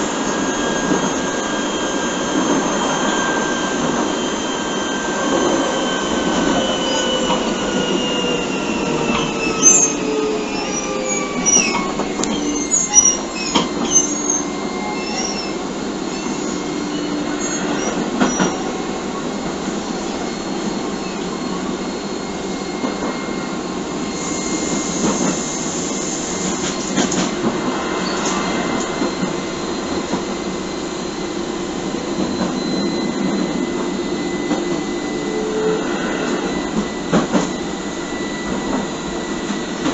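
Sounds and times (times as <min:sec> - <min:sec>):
electric train motor whine: 0:00.0 - 0:39.9.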